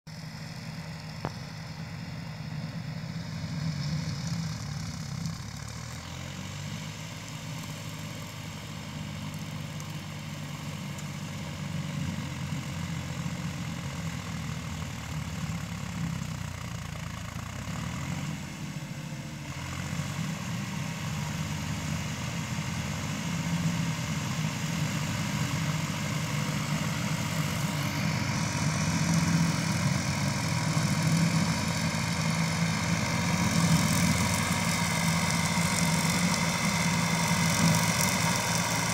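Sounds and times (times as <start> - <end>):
diesel tractor engine running: 0.1 - 38.9
shredder working through brush: 19.6 - 38.9.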